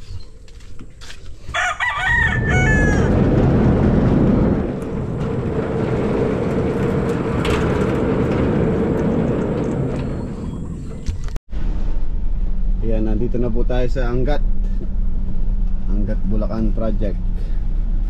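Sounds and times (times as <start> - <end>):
rooster crowing: 1.5 - 3.4
loud low rumble: 1.8 - 18.0.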